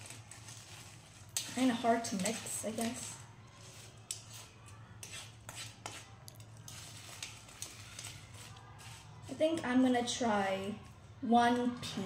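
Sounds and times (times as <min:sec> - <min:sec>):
metal spoon scraping a plate: 0:03.7 - 0:07.3.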